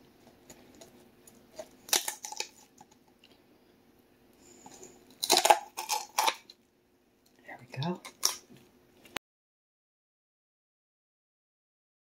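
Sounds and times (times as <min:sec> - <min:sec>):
shears crunching through bones: 0:01.5 - 0:02.8, 0:04.7 - 0:06.5, 0:07.8 - 0:08.6.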